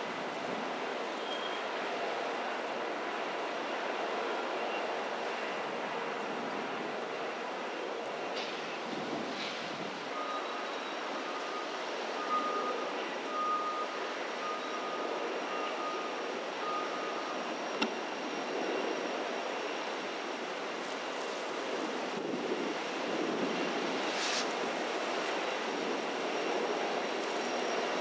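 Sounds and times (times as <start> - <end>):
wind: 0.0 - 28.0
high squeal: 1.2 - 1.7.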